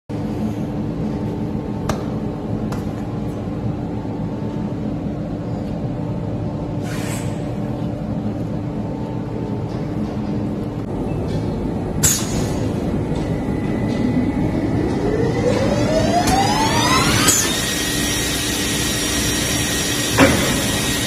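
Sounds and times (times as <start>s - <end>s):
woodworking machinery humming: 10.6s - 21.0s.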